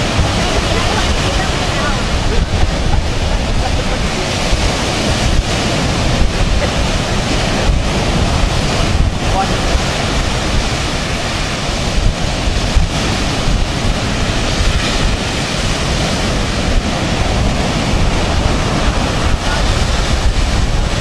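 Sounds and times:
ocean surf breaking on sand: 0.0 - 21.0
wind buffeting microphone: 0.0 - 21.0.

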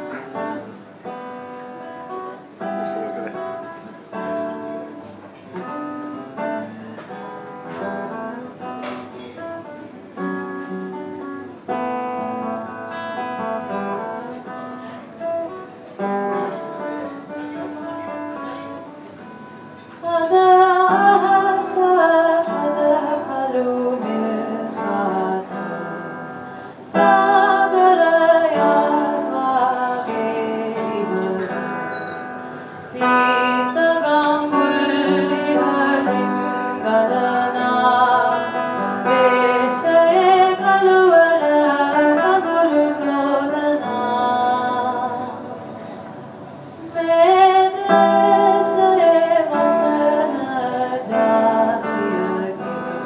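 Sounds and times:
acoustic guitar picking: 0.0 - 53.0
woman singing: 16.3 - 46.0, 46.8 - 53.0.

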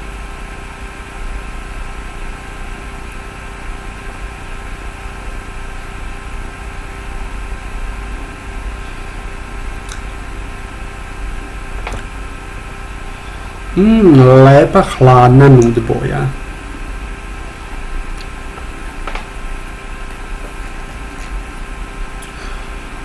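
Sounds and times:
faint whine tones: 7.4 - 23.0
low hum: 8.8 - 23.0.

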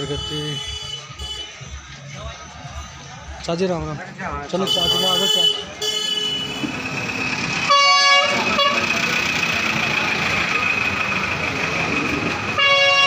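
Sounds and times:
bus horn honking: 0.0 - 1.6, 4.6 - 6.8, 7.6 - 9.3, 12.5 - 13.0
bus engine running: 5.7 - 13.0.

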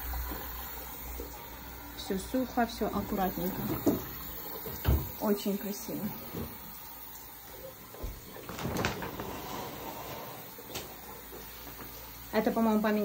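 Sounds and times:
curtain rings scraping along rod: 8.6 - 10.5.

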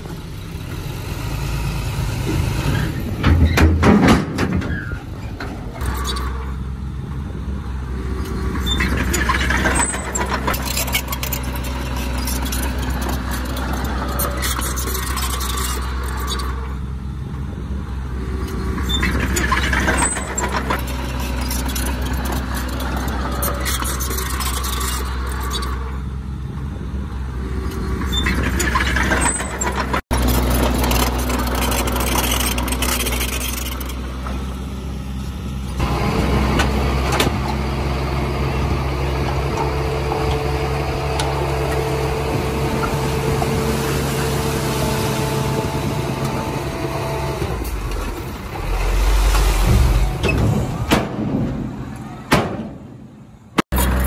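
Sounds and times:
bulldozer diesel engine running: 0.0 - 54.0
mechanical clatter: 47.4 - 54.0.

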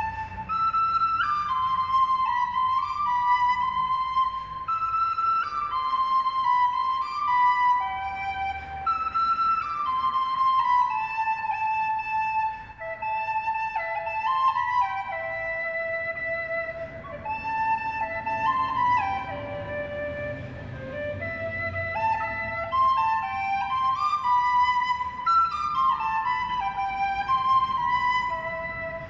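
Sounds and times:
solo flute-like melody: 0.0 - 29.0.

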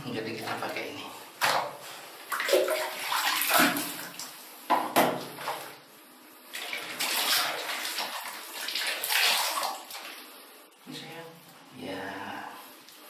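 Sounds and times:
water splashing in bucket: 1.4 - 4.3, 6.5 - 10.3.

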